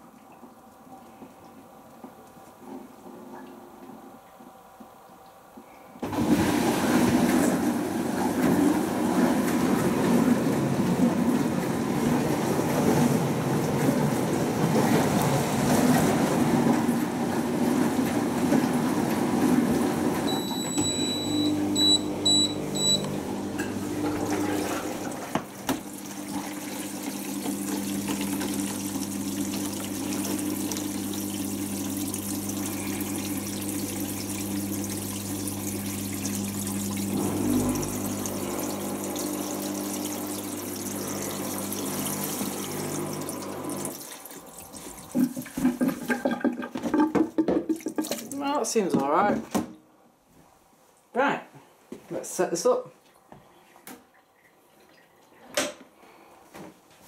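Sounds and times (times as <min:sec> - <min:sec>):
dishwasher drain pump rushing: 0:06.0 - 0:49.3.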